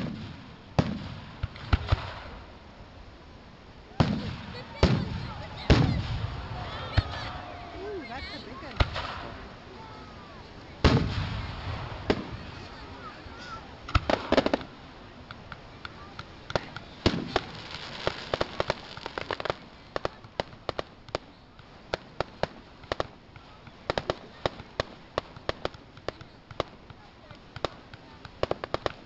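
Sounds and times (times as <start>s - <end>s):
firework shells bursting: 0.0s - 2.4s, 8.6s - 9.5s, 13.8s - 29.0s
fireworks crackling: 0.0s - 29.0s
deep firework bang: 4.0s - 7.4s, 10.8s - 12.8s.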